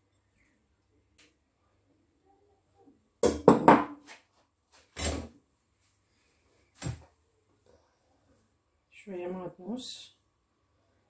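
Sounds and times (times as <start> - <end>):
bowls knocking on counter: 3.2 - 4.0.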